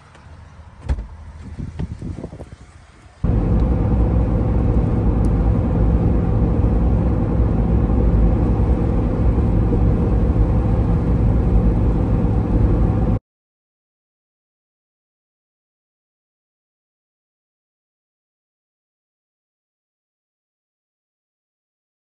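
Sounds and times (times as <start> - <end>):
engine and road noise rumble: 0.0 - 13.2.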